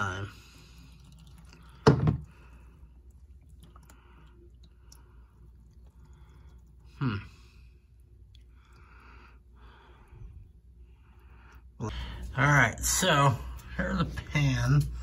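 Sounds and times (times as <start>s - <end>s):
oil trickling into a pan: 0.0s - 7.0s.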